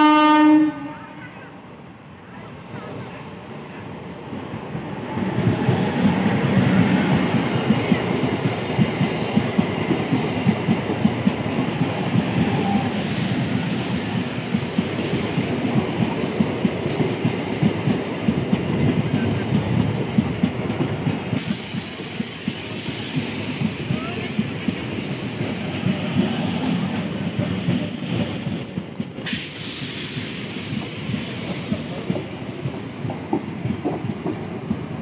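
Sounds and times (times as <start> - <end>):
train wheels clattering over rail joints: 30.6 - 35.0.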